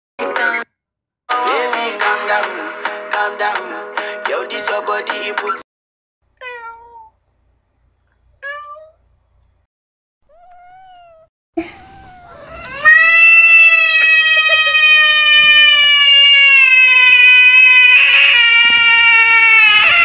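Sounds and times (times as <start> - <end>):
cat meowing: 6.4 - 7.2, 8.4 - 9.0, 10.3 - 20.0
long high-pitched wail: 12.3 - 20.0.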